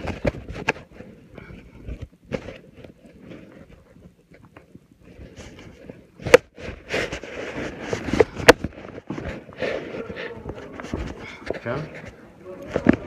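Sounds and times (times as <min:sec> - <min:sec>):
cloth rustling on microphone: 0:00.0 - 0:13.0.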